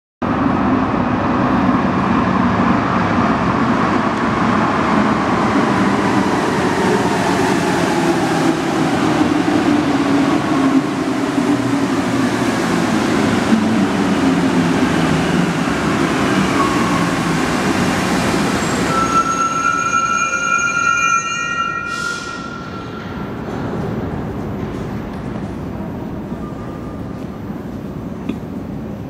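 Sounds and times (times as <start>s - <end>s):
metro train rolling rumble: 0.2s - 29.0s
train whining tones: 14.6s - 23.8s.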